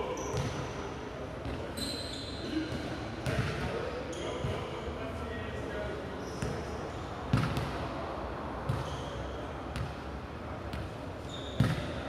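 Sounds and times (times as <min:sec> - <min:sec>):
short high squeaks: 0:01.7 - 0:02.6, 0:11.2 - 0:11.8
ball bouncing on hard floor: 0:11.6 - 0:11.9.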